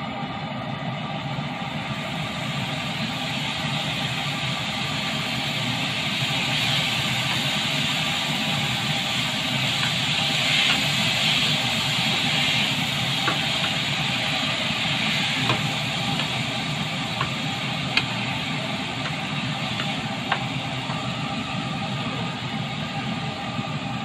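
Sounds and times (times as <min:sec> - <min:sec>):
food sizzling in a pan: 0:01.5 - 0:24.0
wooden spatula knocking on pan: 0:15.4 - 0:16.4, 0:19.8 - 0:21.0.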